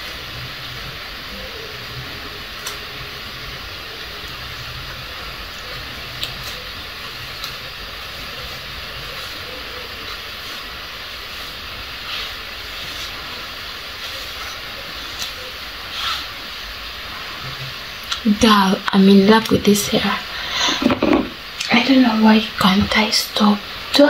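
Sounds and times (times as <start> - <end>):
background hiss: 0.0 - 24.0
comb through hair: 5.6 - 16.5.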